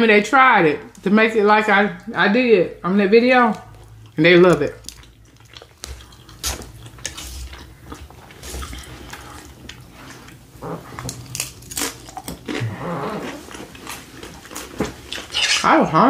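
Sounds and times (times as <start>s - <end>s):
chewing and crunching: 3.3s - 15.7s
crisp chips crunching: 3.4s - 15.7s.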